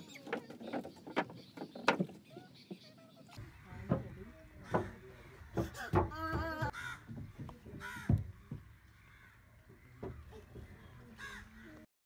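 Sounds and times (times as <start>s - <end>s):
crows cawing: 3.4s - 6.0s, 6.6s - 11.8s.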